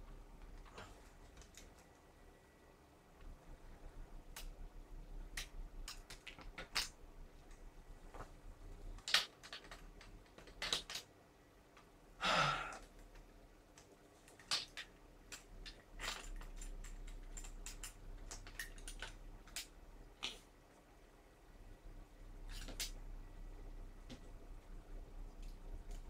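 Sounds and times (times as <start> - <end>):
small parts clicking: 5.2 - 7.7, 8.8 - 11.1, 12.7 - 20.4.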